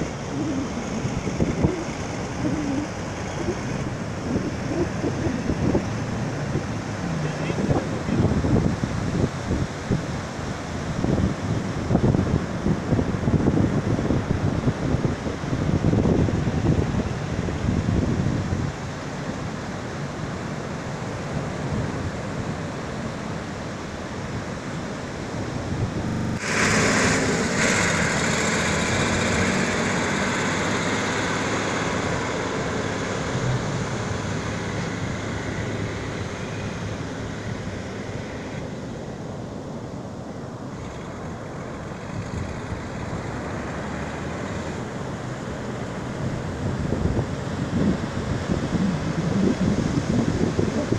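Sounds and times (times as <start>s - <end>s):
wind on microphone: 0.0s - 19.0s, 46.0s - 50.9s.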